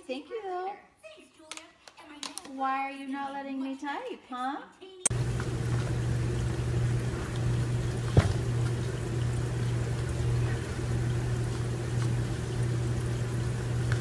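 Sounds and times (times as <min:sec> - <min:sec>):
low hum: 0:05.1 - 0:14.0
watery trickling hiss: 0:05.1 - 0:14.0.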